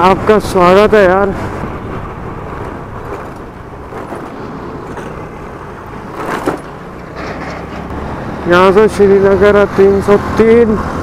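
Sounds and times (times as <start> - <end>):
wind and road noise: 0.0 - 11.0
scooter engine: 1.3 - 8.4.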